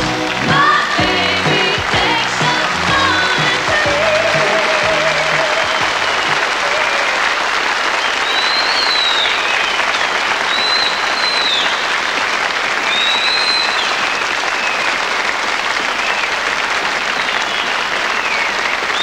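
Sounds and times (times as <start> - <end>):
audience applauding: 0.0 - 19.0
long high whistles: 8.0 - 11.7.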